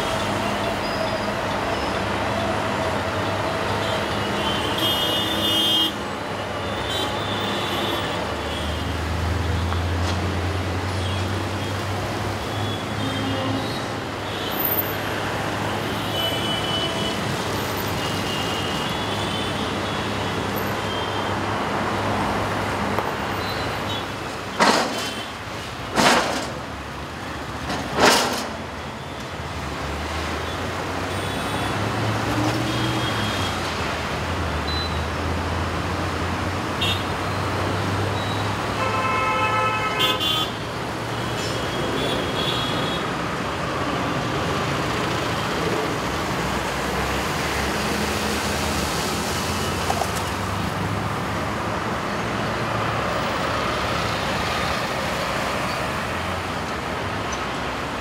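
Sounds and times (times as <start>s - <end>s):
road traffic rumble: 0.0s - 58.0s
vehicle horn toot: 38.8s - 40.6s.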